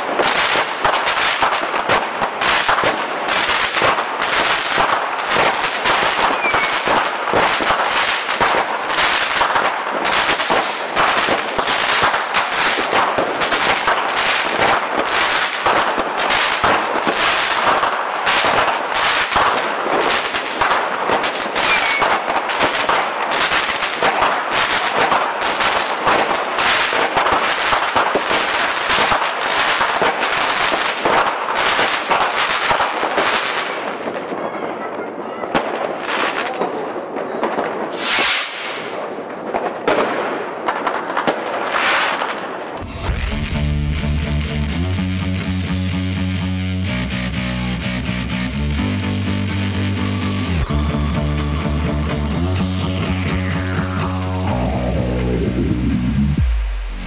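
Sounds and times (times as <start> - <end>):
fireworks cracking and banging: 0.0 - 44.2.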